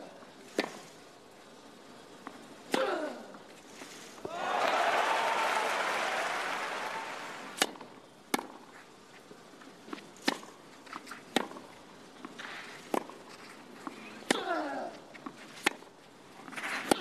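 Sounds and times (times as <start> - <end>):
crowd applause and cheering: 4.3 - 7.6
rackets hitting tennis ball: 6.6 - 7.8, 14.2 - 14.9, 16.5 - 17.0
tennis ball bouncing: 11.3 - 11.7, 14.2 - 14.5.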